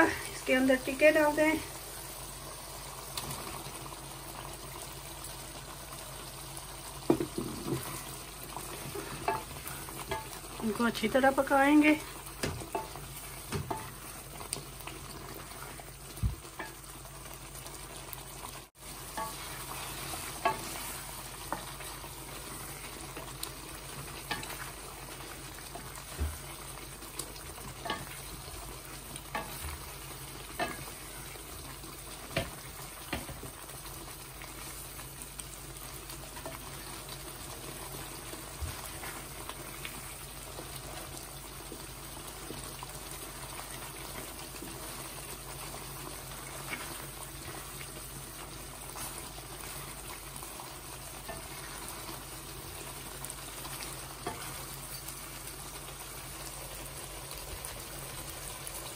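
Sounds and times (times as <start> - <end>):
meat sizzling in a pan: 0.0 - 58.9
wooden spoon knocking on pan: 7.0 - 7.9, 9.0 - 10.4, 12.4 - 14.0, 26.1 - 26.5, 32.3 - 33.5.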